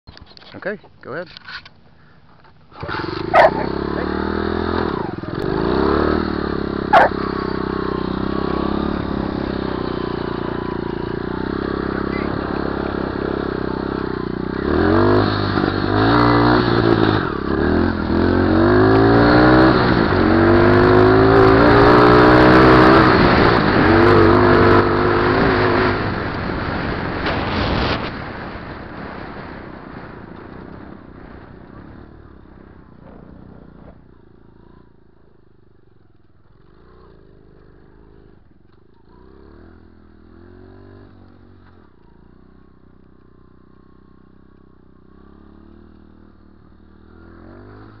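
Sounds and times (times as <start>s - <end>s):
motorbike engine idling: 1.9s - 4.1s, 6.9s - 7.7s
motorbike engine revving: 2.7s - 29.2s, 29.9s - 35.2s.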